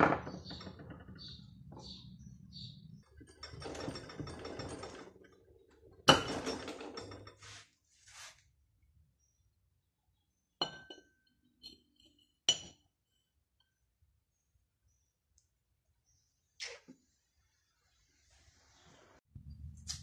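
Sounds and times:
metal clinking and knocking: 0.0s - 7.5s.

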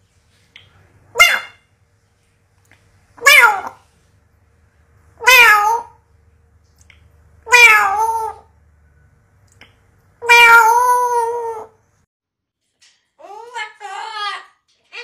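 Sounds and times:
parrot imitating cat meow: 1.1s - 1.6s, 3.2s - 3.8s, 5.2s - 6.0s, 7.4s - 8.5s, 10.2s - 11.8s.

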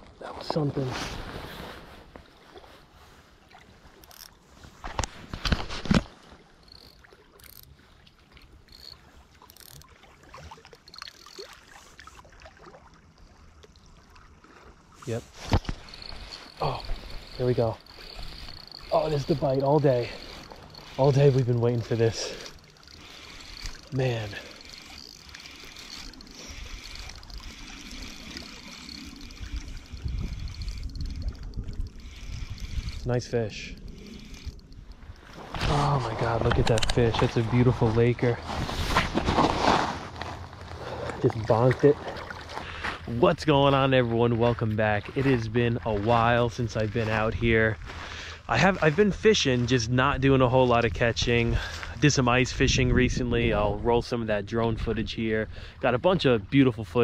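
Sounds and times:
small waves lapping at shore: 0.0s - 47.2s
fishing reel whirring: 3.9s - 12.3s, 15.3s - 37.7s
wind buffeting microphone: 29.2s - 39.4s, 50.0s - 55.7s
hand rubbing against camera: 35.3s - 41.0s.

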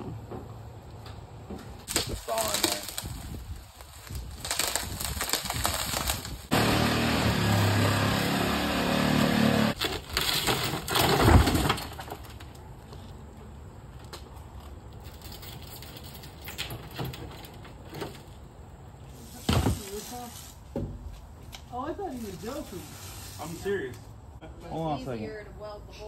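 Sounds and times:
shattered windshield crunching: 1.9s - 6.5s.

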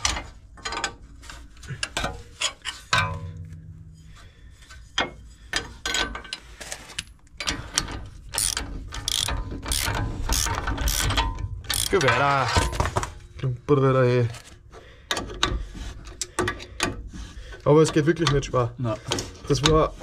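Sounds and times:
ratchet wrench clicking: 8.4s - 12.1s.

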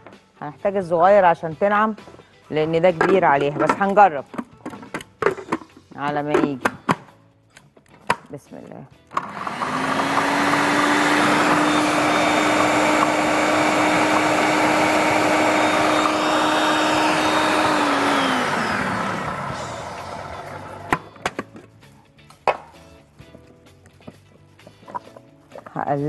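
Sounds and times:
food processor motor running: 9.2s - 20.9s.

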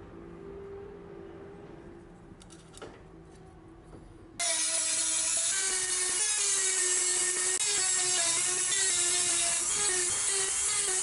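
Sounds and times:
rotary tool grinding steel: 4.4s - 11.0s.

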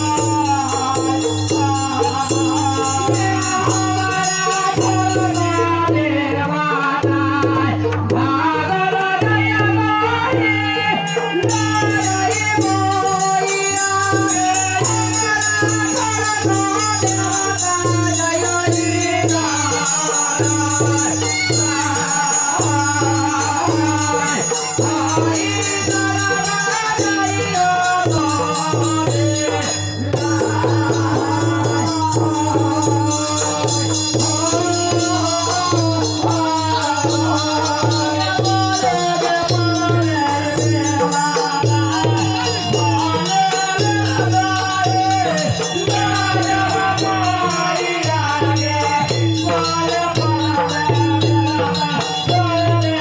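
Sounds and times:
barrel drum: 0.0s - 53.0s
man singing into a microphone: 0.0s - 53.0s
rattling hand percussion: 0.0s - 53.0s.

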